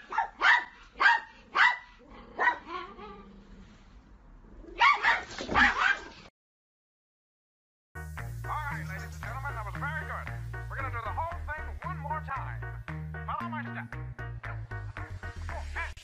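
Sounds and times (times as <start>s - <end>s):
dog barking: 0.0s - 3.0s, 4.8s - 6.2s.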